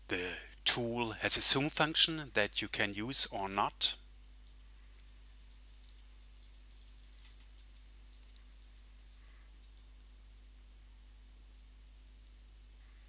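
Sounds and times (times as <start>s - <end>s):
steady low hum: 0.0s - 13.0s
computer clicking: 4.4s - 9.9s.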